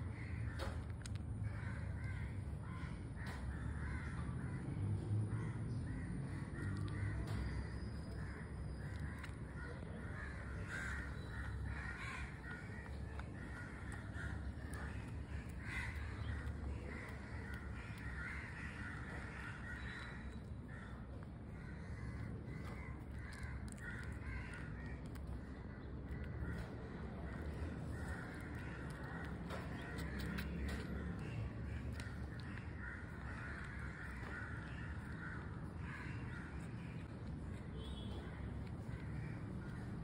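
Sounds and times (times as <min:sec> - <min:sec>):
steady low rumble: 0:00.0 - 0:40.0.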